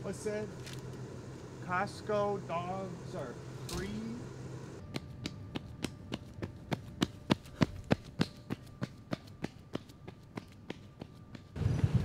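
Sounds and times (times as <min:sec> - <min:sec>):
faint steady hum: 0:00.0 - 0:11.6
running footsteps on concrete: 0:04.8 - 0:11.6.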